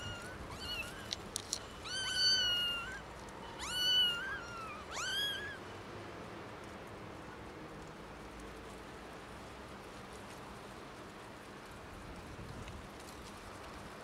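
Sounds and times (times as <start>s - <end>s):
kittens meowing: 0.0s - 1.2s, 1.8s - 5.6s.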